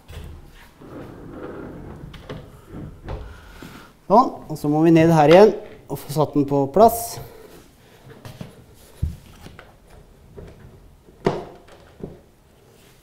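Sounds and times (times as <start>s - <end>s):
faint rubbing of wardrobe door: 0.0s - 4.5s.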